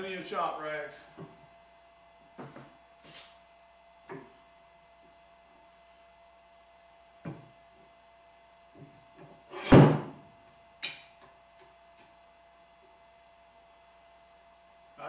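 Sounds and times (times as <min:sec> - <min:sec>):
loud metal clunk with ring: 0:09.5 - 0:10.2.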